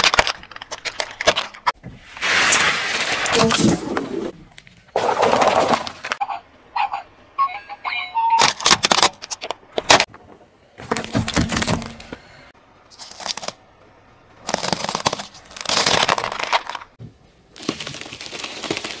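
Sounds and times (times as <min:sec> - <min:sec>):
plastic cracking under tyre: 0:08.4 - 0:12.3, 0:14.4 - 0:17.0
crunching and crackling: 0:08.4 - 0:13.8, 0:14.4 - 0:19.0.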